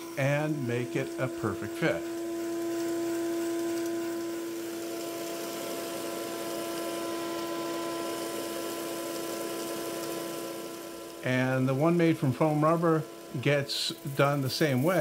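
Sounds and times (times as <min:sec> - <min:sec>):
steady mid-pitched tone: 0:00.0 - 0:02.1
machinery motor hum: 0:00.0 - 0:07.0, 0:10.6 - 0:15.0.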